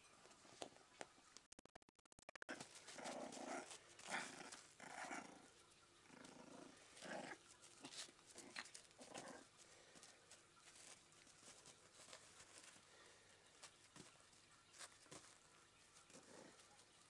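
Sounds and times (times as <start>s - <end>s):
puppy growling: 2.5s - 9.6s, 16.1s - 16.8s.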